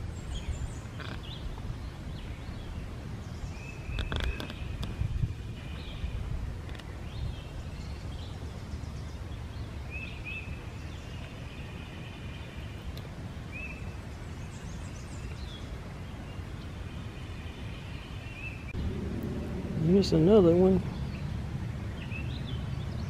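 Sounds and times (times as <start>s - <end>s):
birds chirping: 0.0s - 23.0s
steady low rumble: 18.7s - 23.0s.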